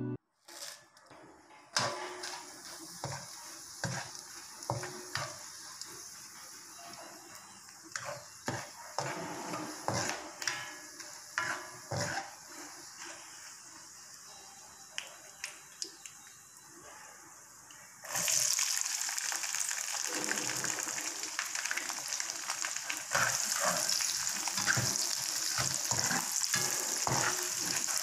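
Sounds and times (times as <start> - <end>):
food sizzling in hot oil: 1.8 - 14.6, 18.0 - 28.0
spatula knocking and scraping pan: 3.0 - 5.4, 7.9 - 12.4, 23.1 - 28.0.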